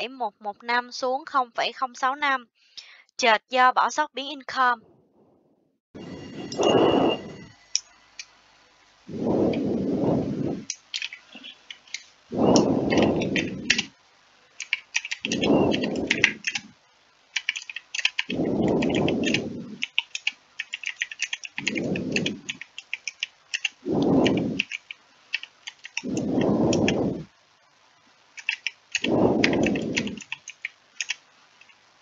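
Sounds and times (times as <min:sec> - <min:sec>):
low rumble: 0:09.1 - 0:10.7, 0:12.3 - 0:13.8, 0:18.3 - 0:19.9, 0:23.8 - 0:24.6, 0:26.1 - 0:27.3, 0:29.1 - 0:30.2
keyboard key clicks: 0:14.6 - 0:16.7.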